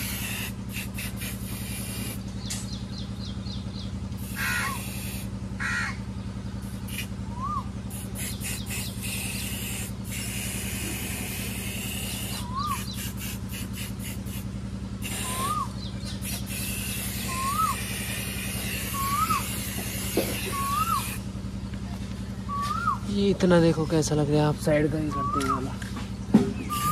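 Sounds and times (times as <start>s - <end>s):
spray paint can hissing: 0.0s - 2.2s, 4.2s - 5.3s, 6.6s - 7.1s, 7.9s - 21.3s
bird calling: 0.0s - 26.9s
low hum: 0.0s - 26.9s.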